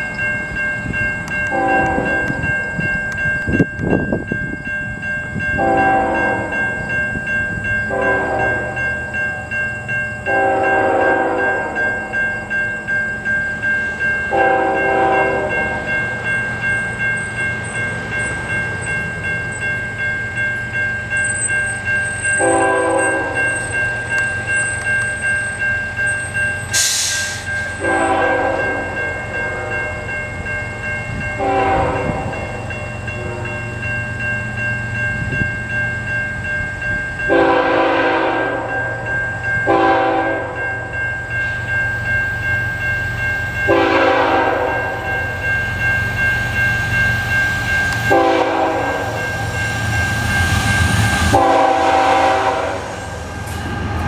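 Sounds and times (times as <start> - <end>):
crossing signal bell ringing: 0.0 - 54.0
locomotive horn chord blasts: 1.5 - 2.4, 5.6 - 6.6, 7.9 - 8.8, 10.3 - 11.9, 14.3 - 15.8, 22.4 - 23.4, 27.8 - 29.9, 31.4 - 32.4, 37.3 - 38.8, 39.7 - 40.6, 43.7 - 45.0, 48.1 - 49.2, 51.3 - 53.2
loud hiss: 26.7 - 27.7.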